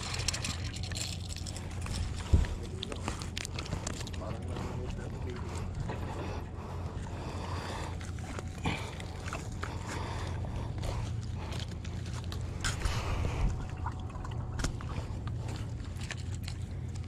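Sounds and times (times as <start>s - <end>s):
small splashes and clicks: 0.0s - 4.6s, 11.5s - 17.0s
steady low rumble: 0.0s - 17.0s
water lapping at shoreline: 0.0s - 17.0s.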